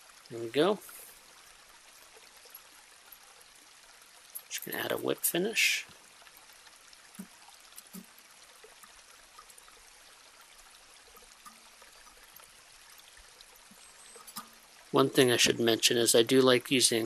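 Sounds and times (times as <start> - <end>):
soft ticks: 7.1 - 8.1, 12.3 - 14.6.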